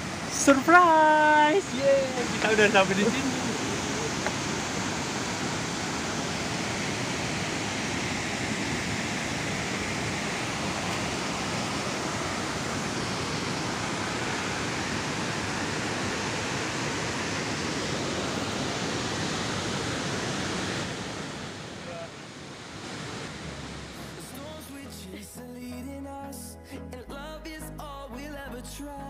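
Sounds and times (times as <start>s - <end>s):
waterfall roaring: 0.0s - 24.6s.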